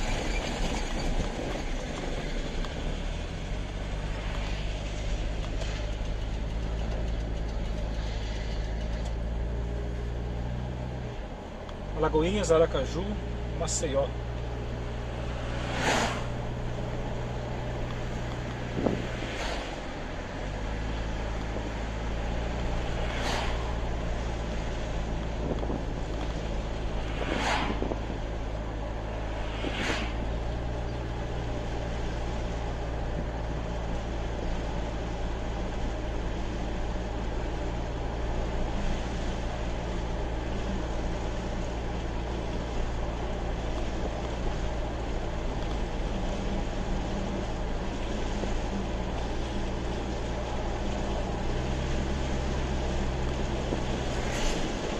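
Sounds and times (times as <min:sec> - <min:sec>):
car engine hum: 0:00.0 - 0:54.9
passing vehicle whooshes: 0:00.0 - 0:54.9
tyre and wind noise: 0:14.6 - 0:34.7, 0:36.8 - 0:54.9.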